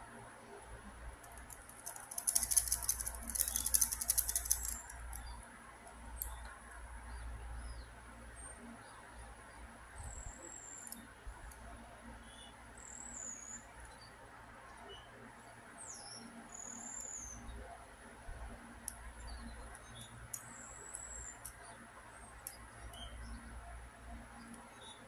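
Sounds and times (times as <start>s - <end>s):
faint plastic clicks: 1.1s - 6.8s, 10.7s - 11.8s, 18.3s - 23.4s, 24.1s - 25.0s
plastic axle squeaking: 1.9s - 4.9s.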